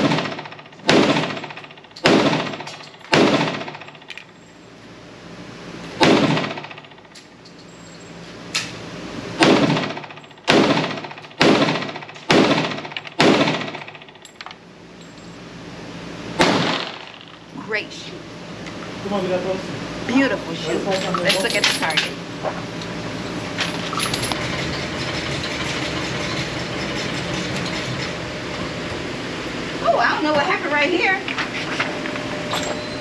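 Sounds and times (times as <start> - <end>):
pistol shots: 0.0 - 3.8, 6.0 - 6.8, 9.4 - 14.0, 16.4 - 17.1.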